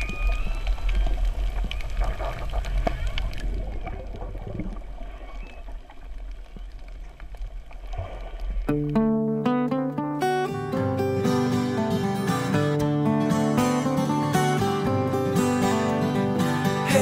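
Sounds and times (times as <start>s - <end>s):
low underwater rumble: 0.0s - 9.0s
water gurgling and sloshing: 0.0s - 9.0s.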